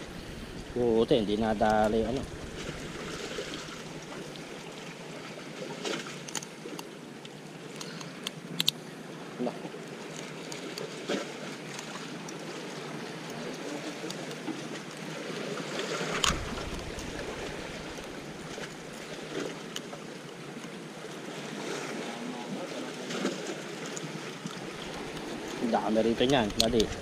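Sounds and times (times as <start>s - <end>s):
sea washing against rocks: 0.0s - 6.9s, 10.0s - 27.0s
small clicks: 6.2s - 8.8s, 24.4s - 27.0s.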